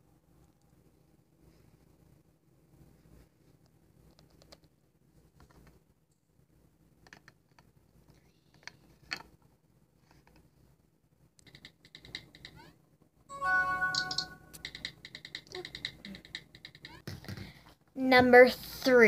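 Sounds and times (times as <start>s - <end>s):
plastic toy clicks and taps: 14.0s - 17.2s.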